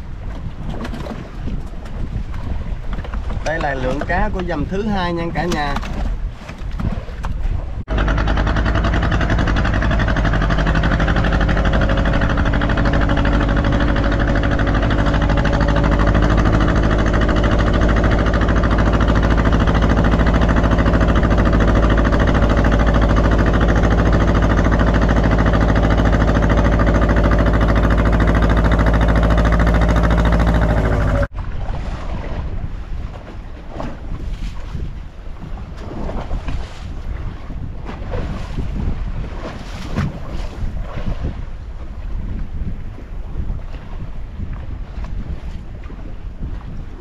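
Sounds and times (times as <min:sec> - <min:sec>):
boat engine droning: 0:07.2 - 0:34.4.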